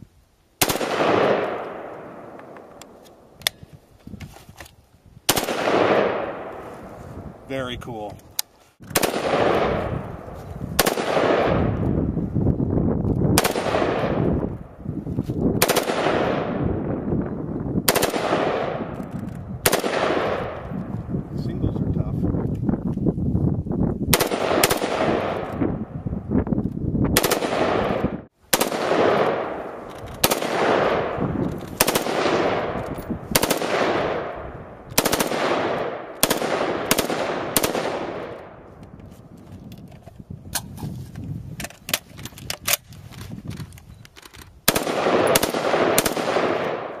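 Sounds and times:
rifle shots with echo: 0:00.6 - 0:02.9, 0:05.3 - 0:07.4, 0:08.9 - 0:11.8, 0:13.4 - 0:14.4, 0:15.6 - 0:17.1, 0:17.8 - 0:20.7, 0:24.1 - 0:26.0, 0:27.2 - 0:38.7, 0:44.6 - 0:47.0.

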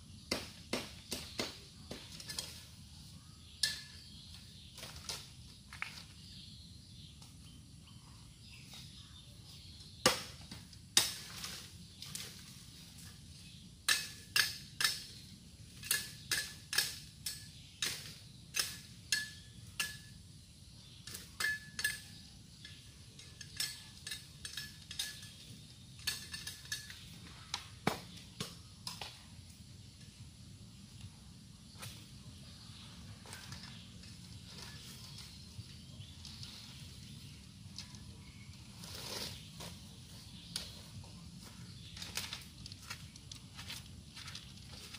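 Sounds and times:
machete chopping bamboo: 0:00.3 - 0:02.1, 0:10.0 - 0:11.5.

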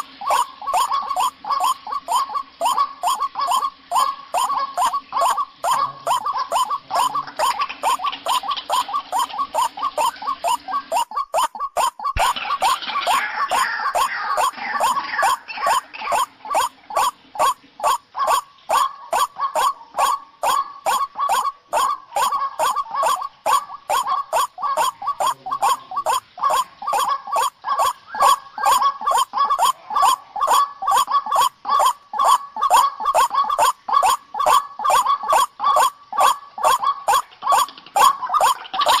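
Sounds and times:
waterhen croaking calls: 0:00.0 - 0:39.0.

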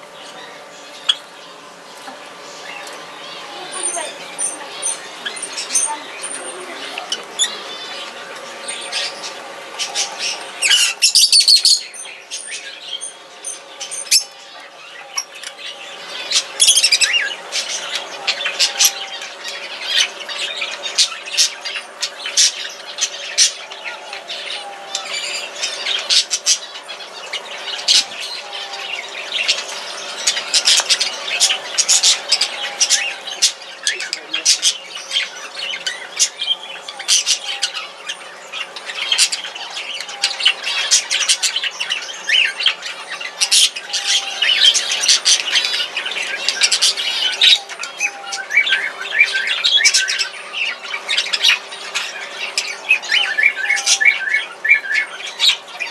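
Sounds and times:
small parrots chirping and squawking: 0:00.0 - 0:55.9.

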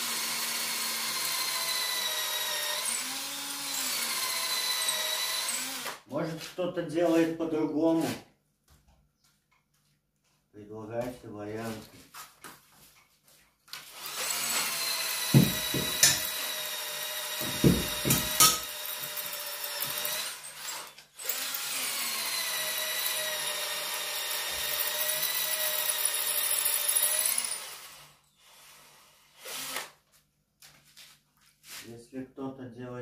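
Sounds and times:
electric drill boring into brick: 0:00.0 - 0:06.0, 0:13.8 - 0:30.0
heavy knocks: 0:15.3 - 0:16.3, 0:17.4 - 0:18.6.

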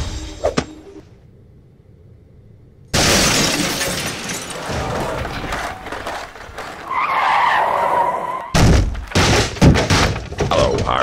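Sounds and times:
glass shattering: 0:03.0 - 0:05.0
heavy thud: 0:08.6 - 0:10.9.

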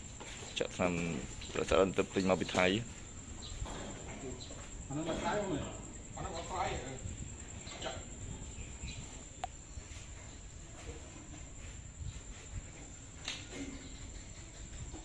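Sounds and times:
insects droning: 0:00.0 - 0:15.0.

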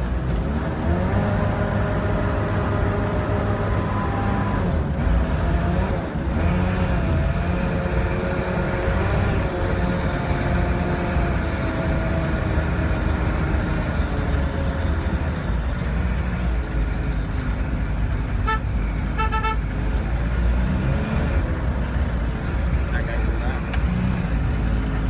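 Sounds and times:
diesel engine running: 0:00.0 - 0:25.0
vehicle horn toots: 0:18.4 - 0:19.7.

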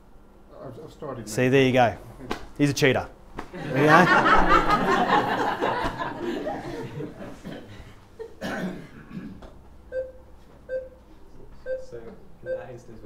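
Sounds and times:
audience laughing: 0:03.5 - 0:08.4
short electronic beep: 0:09.9 - 0:11.0.

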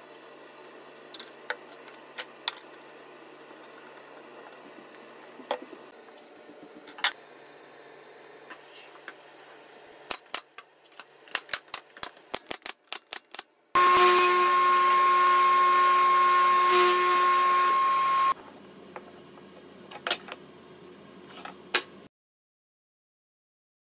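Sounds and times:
table saw whining: 0:13.8 - 0:18.4.

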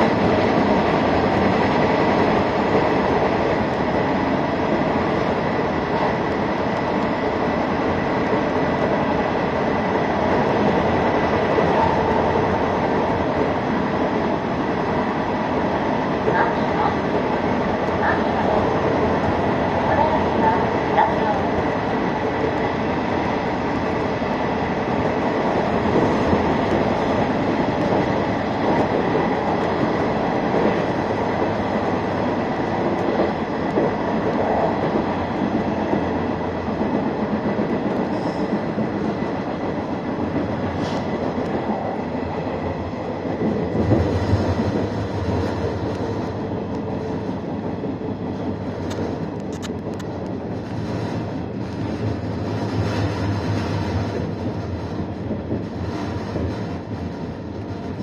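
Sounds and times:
train running rumble: 0:00.0 - 0:58.0.

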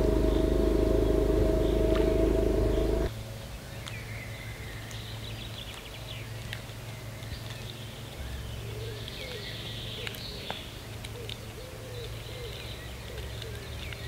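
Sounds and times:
low background rumble: 0:00.0 - 0:03.5
songbirds chirping: 0:00.0 - 0:14.0.

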